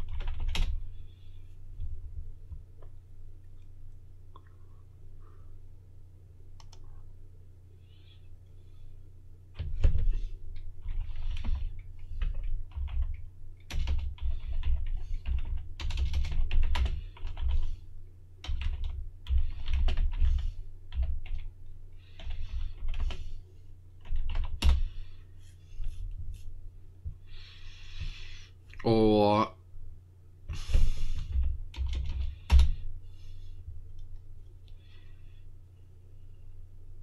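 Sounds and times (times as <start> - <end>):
keyboard typing clicks: 6.6 - 6.9.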